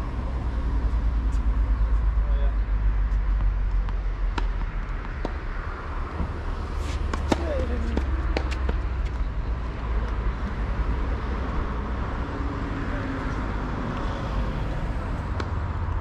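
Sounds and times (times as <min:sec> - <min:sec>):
outdoor rumble and hiss: 0:00.0 - 0:16.0
distant tennis ticks: 0:03.4 - 0:05.4, 0:07.1 - 0:09.2
tennis racket striking ball: 0:03.8 - 0:05.5, 0:06.8 - 0:08.6.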